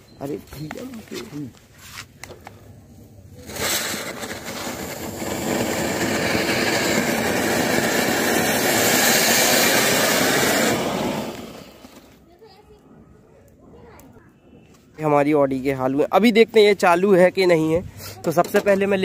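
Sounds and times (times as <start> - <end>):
fountain firecrackers hissing: 3.1 - 12.2.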